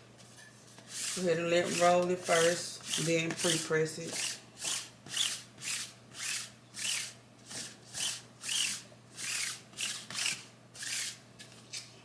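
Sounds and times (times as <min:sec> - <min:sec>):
lint roller rolling over fabric: 0:00.8 - 0:04.2.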